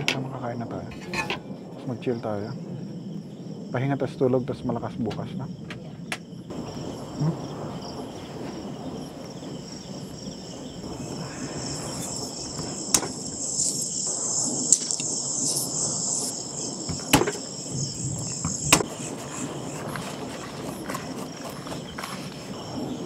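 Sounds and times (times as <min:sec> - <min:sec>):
crickets chirping: 0:00.0 - 0:23.0
sharp knocks: 0:16.9 - 0:17.5, 0:18.4 - 0:18.9.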